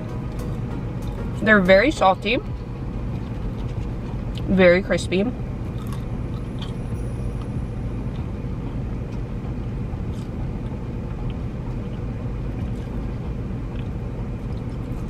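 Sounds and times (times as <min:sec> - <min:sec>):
car idling: 0:00.0 - 0:15.0
fries being chewed: 0:02.4 - 0:04.6, 0:05.6 - 0:15.0.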